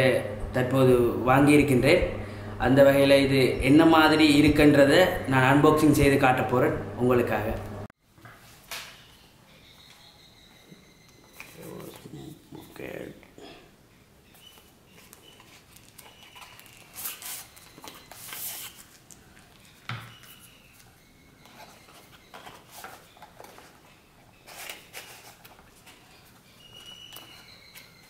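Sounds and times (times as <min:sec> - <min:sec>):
cardboard and paper rustling: 0:14.4 - 0:20.8, 0:21.5 - 0:28.0.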